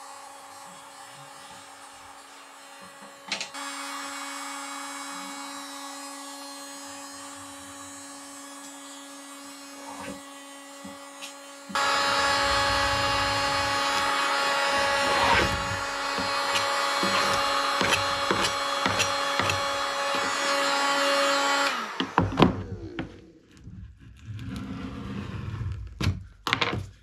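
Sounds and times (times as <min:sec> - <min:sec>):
scraper scraping decal off wood: 0:11.2 - 0:20.3
heat gun humming: 0:11.2 - 0:23.4.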